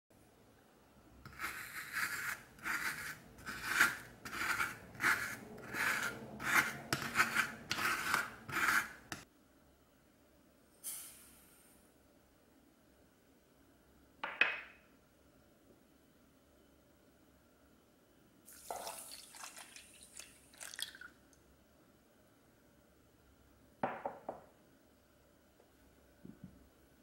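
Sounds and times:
metal scoop scraping ice cream: 0:01.3 - 0:09.2
sugar pouring into metal bowl: 0:18.5 - 0:21.2.

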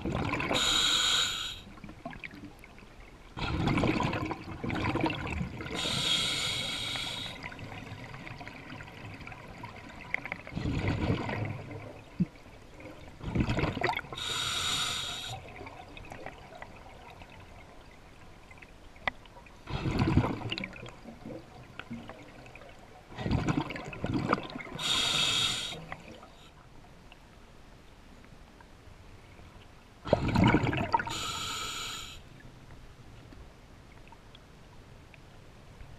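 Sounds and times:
exhaled bubbles gurgling: 0:00.0 - 0:02.8, 0:03.4 - 0:17.8, 0:19.7 - 0:26.4, 0:30.1 - 0:31.3
hissing inhale through regulator: 0:00.5 - 0:01.7, 0:05.7 - 0:07.6, 0:14.1 - 0:15.5, 0:24.8 - 0:26.6, 0:31.0 - 0:32.3.

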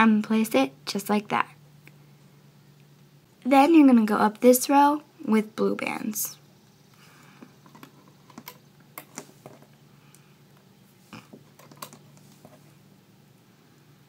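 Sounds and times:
faint low hum: 0:00.0 - 0:14.0.

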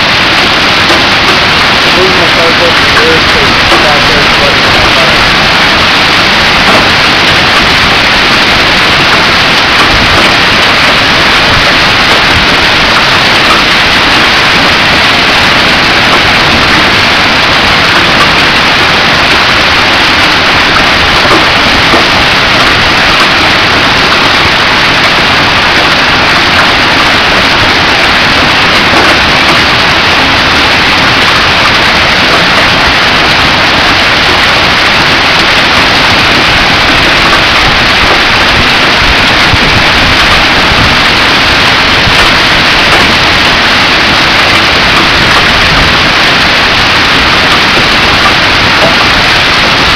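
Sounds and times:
hail and heavy rain pelting: 0:00.0 - 0:49.9.

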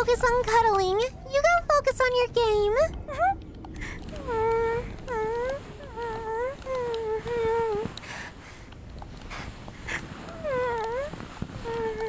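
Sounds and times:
soft breathy sounds: 0:02.8 - 0:12.0.

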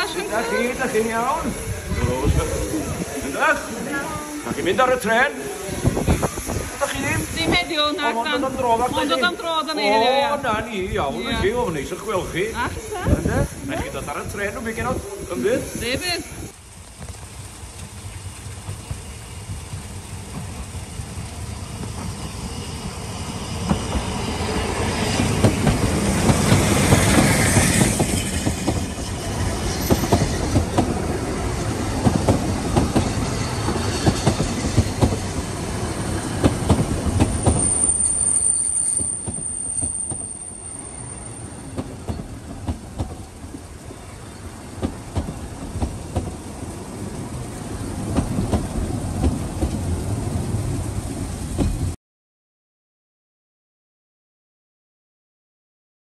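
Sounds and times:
train wheel clicks: 0:25.2 - 0:31.1, 0:31.9 - 0:40.7, 0:41.6 - 0:43.8, 0:44.7 - 0:46.4
high wheel squeal: 0:26.6 - 0:31.2, 0:37.2 - 0:42.4.

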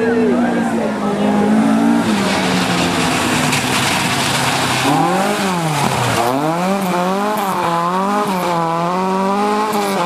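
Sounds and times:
car engine revving hard: 0:01.1 - 0:10.0
tyres hissing on gravel: 0:02.0 - 0:07.7.

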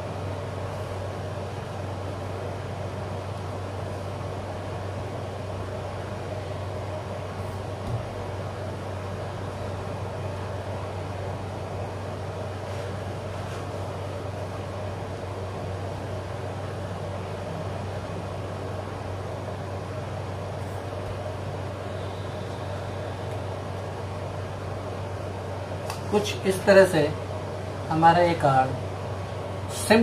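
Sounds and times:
electric appliance humming: 0:00.0 - 0:30.0.

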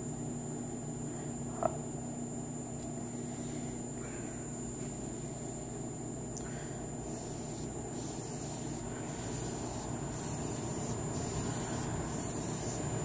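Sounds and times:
steady background hiss: 0:00.0 - 0:13.0
foam brush rubbing strokes: 0:07.0 - 0:13.0.

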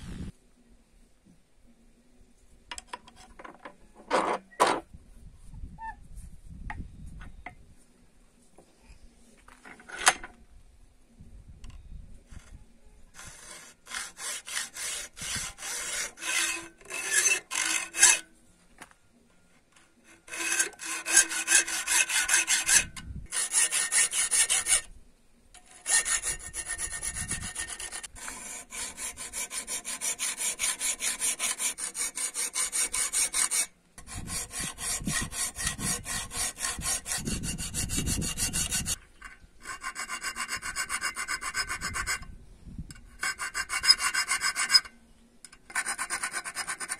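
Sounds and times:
hand file scraping steel: 0:13.1 - 0:18.3, 0:20.0 - 0:24.9, 0:25.6 - 0:42.3, 0:43.0 - 0:44.9, 0:45.7 - 0:46.9.

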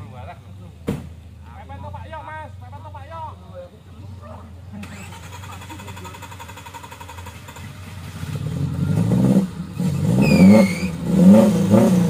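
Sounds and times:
car engine revving: 0:03.9 - 0:12.0.

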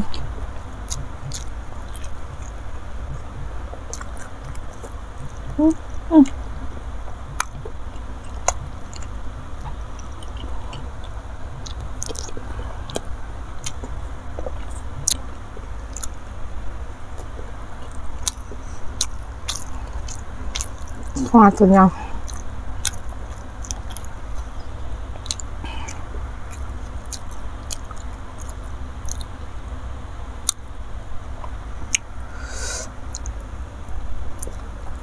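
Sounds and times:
close chewing: 0:00.0 - 0:06.4, 0:07.2 - 0:16.2, 0:17.1 - 0:21.3, 0:21.9 - 0:29.4, 0:33.1 - 0:35.0
steady low hum: 0:00.0 - 0:35.0
person humming: 0:05.5 - 0:06.4
wet mouth clicks and smacks: 0:25.2 - 0:29.3.

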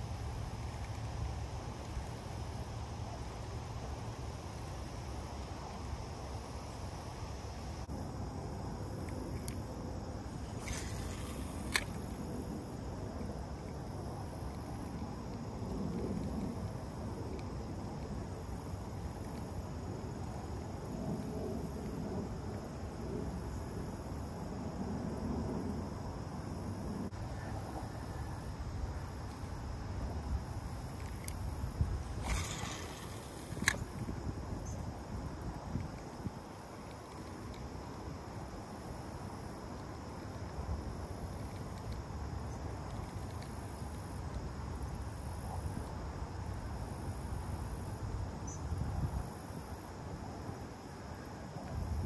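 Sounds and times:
faint high hiss: 0:00.0 - 0:15.3, 0:27.0 - 0:40.3
wind rumbling on microphone: 0:00.0 - 0:52.0
sharp click: 0:32.2 - 0:34.0.

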